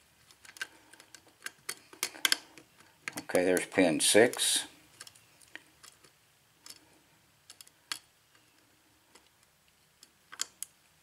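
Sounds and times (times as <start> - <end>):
lock picking clicks: 0.3 - 3.7.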